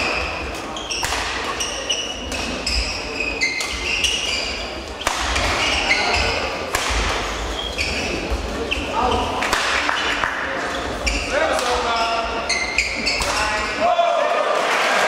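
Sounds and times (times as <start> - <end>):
shoes squeaking on court floor: 0.0 - 13.6
racket hitting shuttlecock: 0.9 - 2.8, 3.5 - 4.2, 5.0 - 7.4, 9.4 - 10.3, 11.6 - 11.8.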